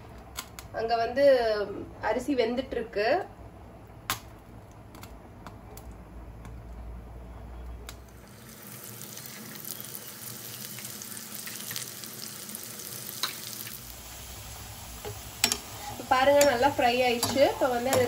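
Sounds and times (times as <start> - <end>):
onions sizzling and crackling: 7.9 - 18.0
ghee ticking in a pan: 15.1 - 18.0.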